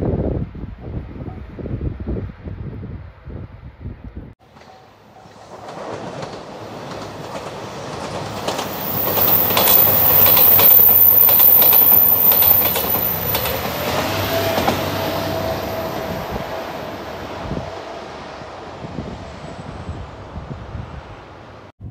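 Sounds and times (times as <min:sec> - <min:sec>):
wheels clacking over rail joints: 0:04.4 - 0:17.0
train passing: 0:04.4 - 0:21.7
steady whistling tone: 0:08.6 - 0:14.0.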